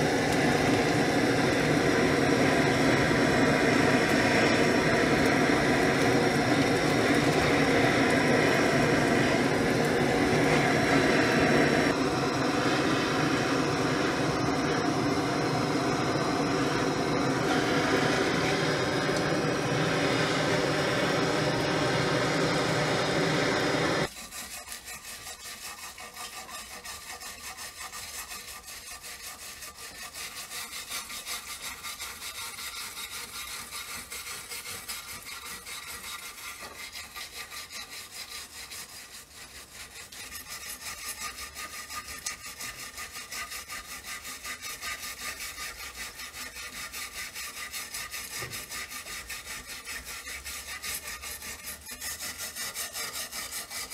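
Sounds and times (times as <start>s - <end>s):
loud steady machine noise: 0.0s - 24.1s, 45.2s - 53.9s
hand tool rubbing strokes: 0.0s - 53.9s.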